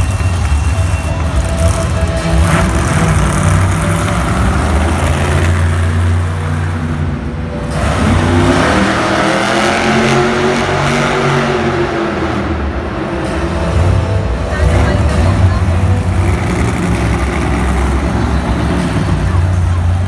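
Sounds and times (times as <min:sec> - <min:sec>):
monster truck engine revving: 0:00.0 - 0:20.0.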